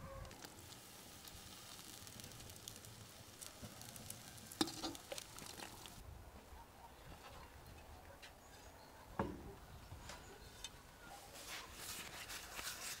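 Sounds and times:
food sizzling in a pan: 0.2s - 6.0s.

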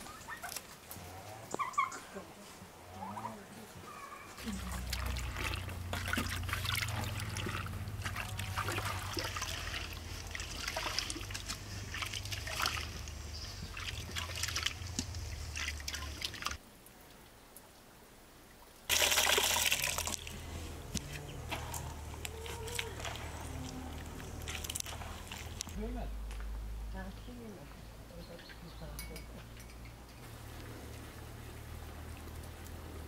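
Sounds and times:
hands squelching fruit in water: 4.4s - 16.6s, 18.9s - 26.5s
liquid splashing: 4.4s - 16.6s, 18.9s - 26.5s.

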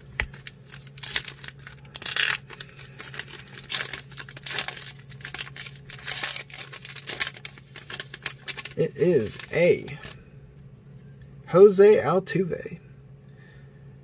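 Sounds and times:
foil wrapper crinkling and tearing: 0.0s - 10.2s.

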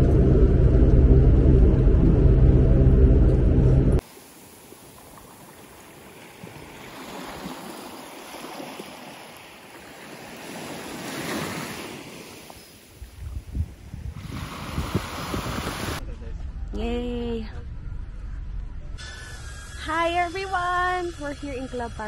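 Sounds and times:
small waves lapping on beach: 4.0s - 16.0s
wind buffeting microphone: 10.2s - 16.0s.

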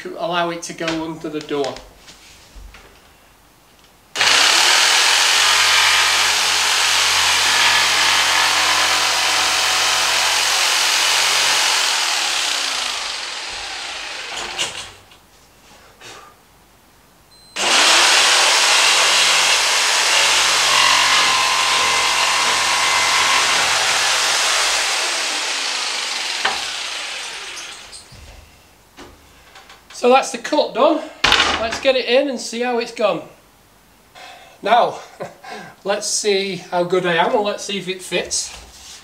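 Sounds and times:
jigsaw cutting board: 4.2s - 15.0s, 17.6s - 27.9s.

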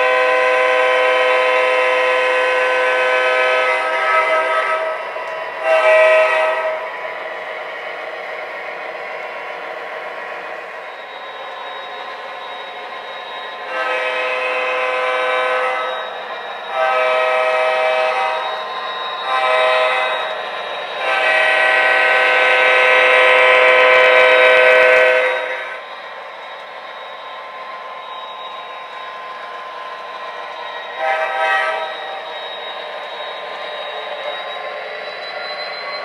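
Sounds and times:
diesel horn blasts: 0.0s - 5.0s, 5.6s - 6.8s, 13.7s - 16.0s, 16.7s - 18.4s, 19.2s - 20.2s, 21.0s - 25.6s, 31.0s - 32.0s.

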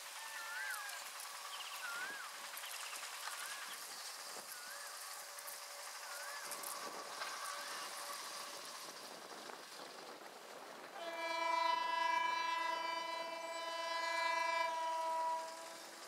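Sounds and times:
faint birdsong: 0.3s - 5.2s
locomotive air horn blast: 11.0s - 16.0s.

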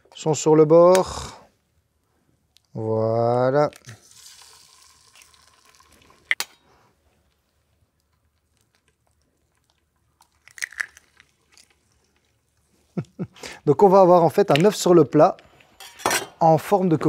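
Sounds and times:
eggshell crunching clicks: 8.0s - 11.8s.

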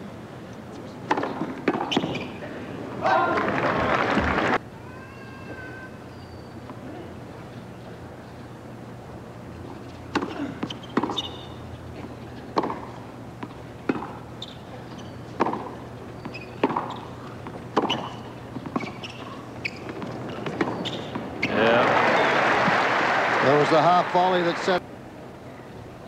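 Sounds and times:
low crowd background: 0.0s - 26.0s
tennis ball struck by rackets: 1.1s - 2.2s, 10.1s - 11.5s, 12.5s - 14.2s, 15.4s - 21.2s.

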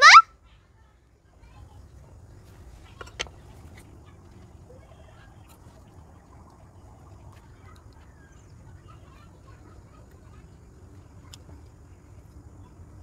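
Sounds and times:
faint bird calls: 0.0s - 0.6s
steady low rumble: 1.7s - 13.0s.

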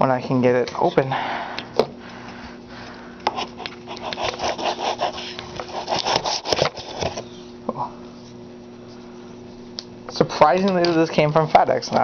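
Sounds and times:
blade sawing through tape: 3.4s - 7.1s.

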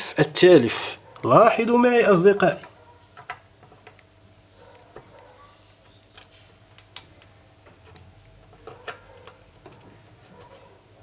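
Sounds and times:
faint steady hum: 0.0s - 11.0s
small parts clicking and tapping: 2.6s - 4.1s, 4.7s - 10.6s.

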